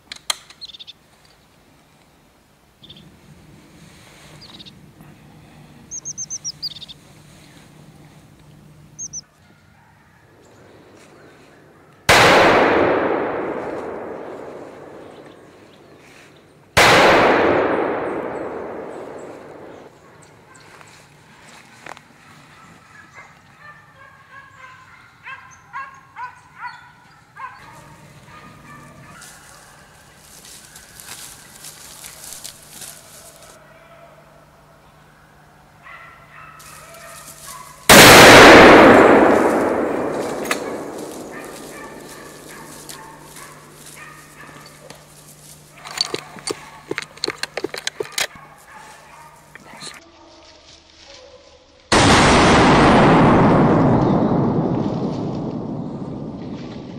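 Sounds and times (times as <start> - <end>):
rifle shots with echo: 12.1 - 15.9, 16.8 - 20.1, 37.9 - 43.5, 51.9 - 56.9.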